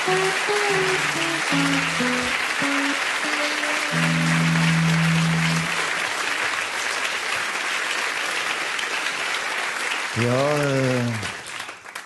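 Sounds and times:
electric guitar phrase: 0.0 - 5.8
studio audience applauding: 0.0 - 12.0.

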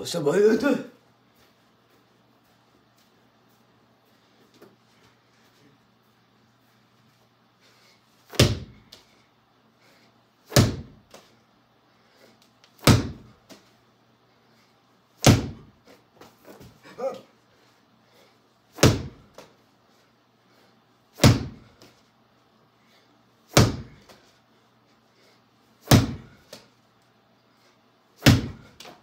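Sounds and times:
medicine ball thudding on mat: 8.3 - 8.9, 10.5 - 11.2, 12.8 - 13.6, 15.2 - 15.7, 18.8 - 19.5, 21.2 - 21.8, 23.5 - 24.2, 25.8 - 26.4, 28.2 - 28.8.

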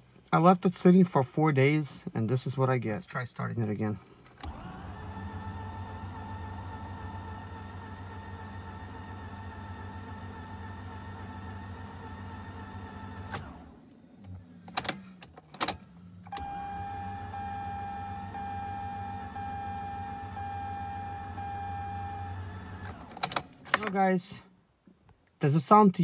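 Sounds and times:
engine cranked by starter motor: 4.3 - 23.9.

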